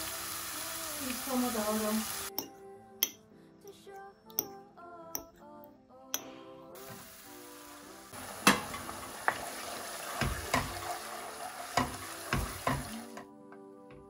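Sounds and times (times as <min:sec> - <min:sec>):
food sizzling in a pot: 0:00.0 - 0:02.4, 0:06.8 - 0:13.3
wooden spoon knocking pot: 0:10.2 - 0:10.8.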